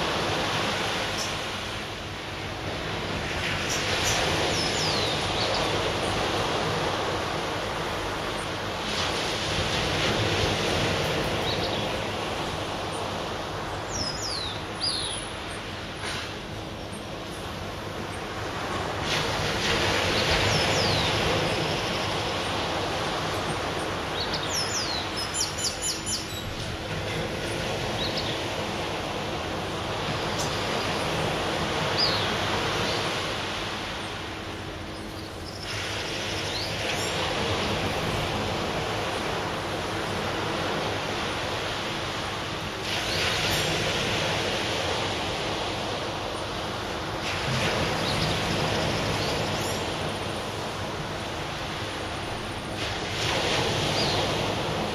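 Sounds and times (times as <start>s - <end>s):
surf breaking on beach: 2.4s - 14.0s, 18.4s - 25.4s, 35.5s - 54.9s
birds chirping: 13.8s - 15.8s, 20.1s - 26.7s, 30.1s - 33.2s.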